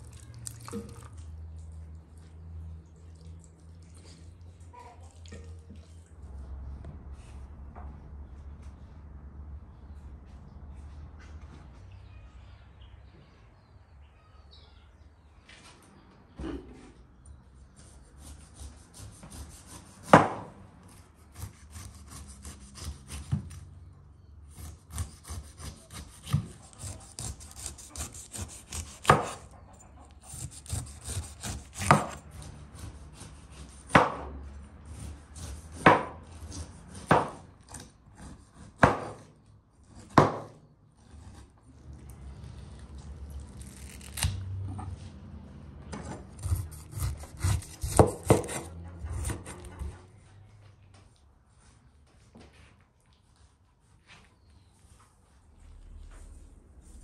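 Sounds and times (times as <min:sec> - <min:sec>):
knife sawing through pineapple skin: 0:17.8 - 0:23.6, 0:24.5 - 0:34.1, 0:34.8 - 0:38.9, 0:43.4 - 0:44.4, 0:46.1 - 0:49.9.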